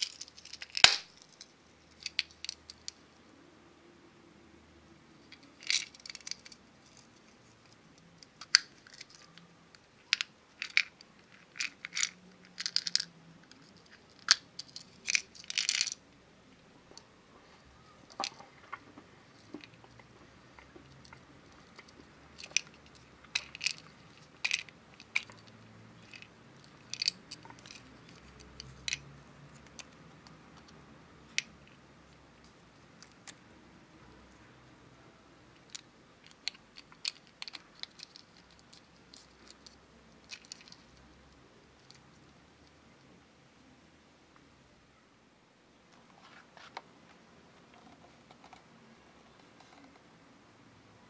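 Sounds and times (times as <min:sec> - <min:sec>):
hard plastic clicks and snaps: 0:00.1 - 0:03.0.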